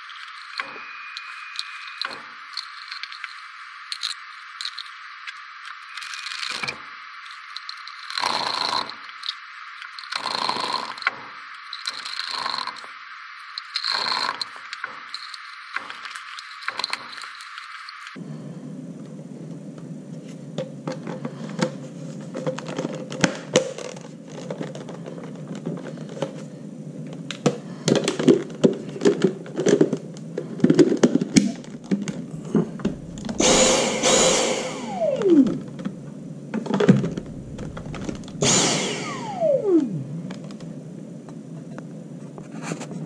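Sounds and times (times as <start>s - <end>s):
plastic parts clicking and knocking: 20.6s - 26.4s, 27.1s - 33.4s
vacuum motor whining: 32.8s - 35.8s, 36.9s - 40.5s.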